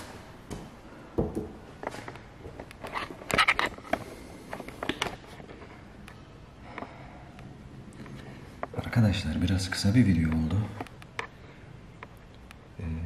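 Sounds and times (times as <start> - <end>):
camera handling rustles and knocks: 1.8 - 5.6.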